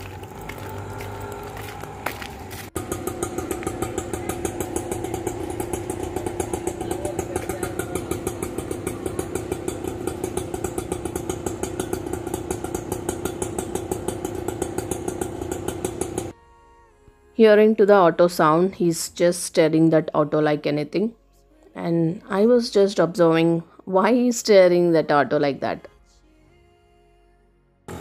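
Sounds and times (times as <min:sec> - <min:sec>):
rickshaw engine idling: 0:00.0 - 0:16.4.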